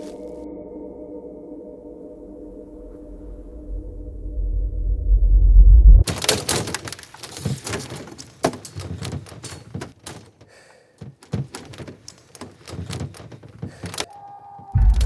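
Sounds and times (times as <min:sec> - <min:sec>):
clothing and bag rustling: 0:06.0 - 0:14.1.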